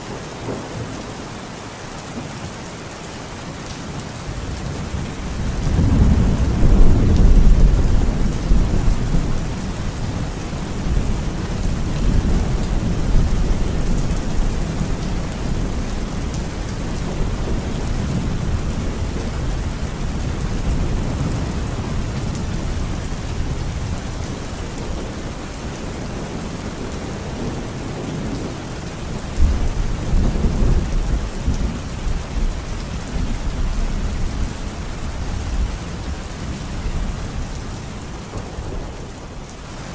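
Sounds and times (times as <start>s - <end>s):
heavy rain: 0.0s - 39.9s
rolling thunder: 5.1s - 25.2s.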